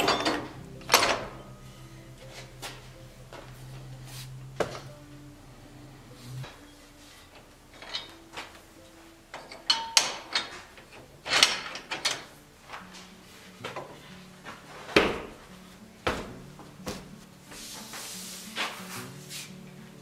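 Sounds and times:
metallic ring: 0.0 - 2.0, 9.4 - 10.5
wooden wheel knocks and clunks: 16.0 - 17.1.

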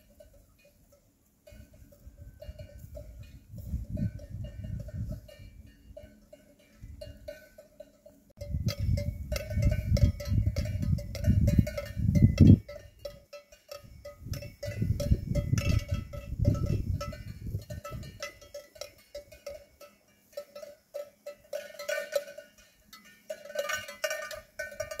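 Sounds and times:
cattle bells clanking: 0.0 - 25.0
wind rumble on microphone: 1.6 - 6.0, 8.4 - 13.2, 13.8 - 18.5.

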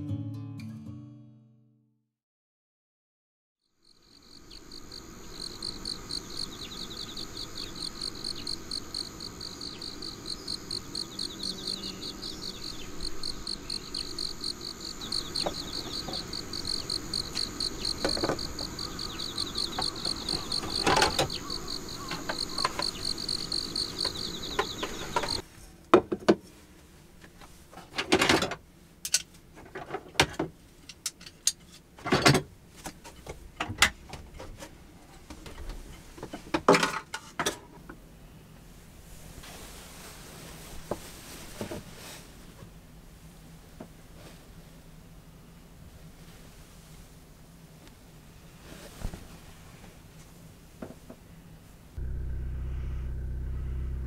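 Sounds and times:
insects chirping: 3.6 - 25.4.

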